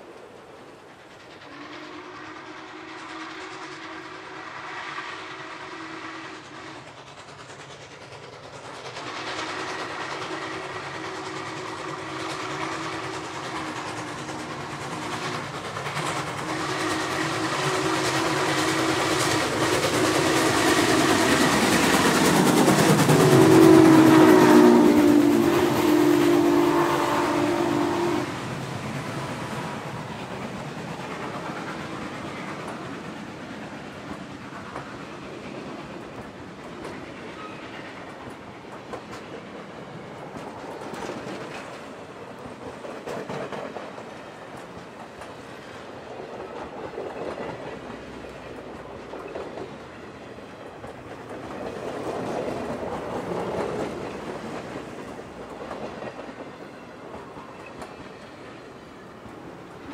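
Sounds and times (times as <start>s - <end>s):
train wheels clickety-clack: 0.0s - 59.9s
steam locomotive chime whistle: 1.4s - 6.9s, 16.4s - 28.4s, 37.2s - 38.2s.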